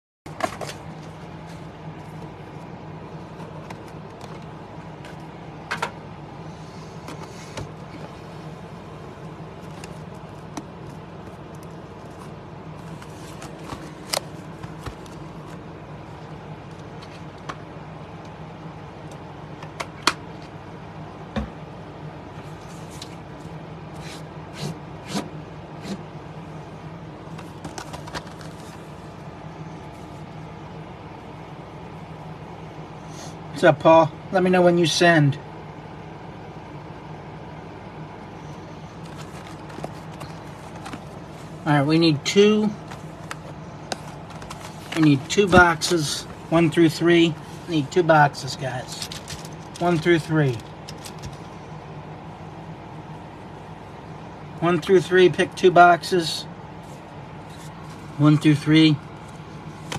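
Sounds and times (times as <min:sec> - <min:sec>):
steady low hum: 0:00.3 - 0:59.9
boxes tapping on desk mat: 0:42.8 - 0:45.7.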